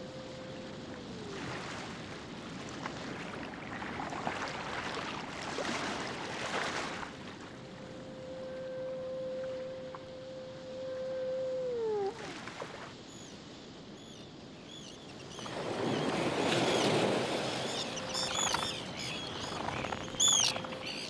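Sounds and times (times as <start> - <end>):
foghorn: 0.0 - 2.0, 7.2 - 13.3, 15.8 - 21.0
seabirds calling: 7.6 - 21.0.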